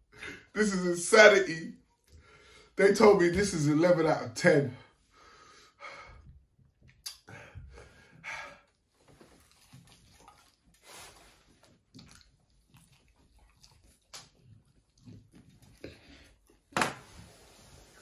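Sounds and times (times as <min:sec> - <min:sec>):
man chewing chicken wing: 0:09.0 - 0:16.7.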